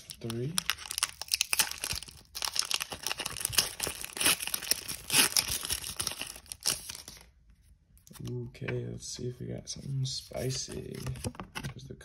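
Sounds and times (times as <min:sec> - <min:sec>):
foil wrapper crinkling and tearing: 0:00.0 - 0:07.3.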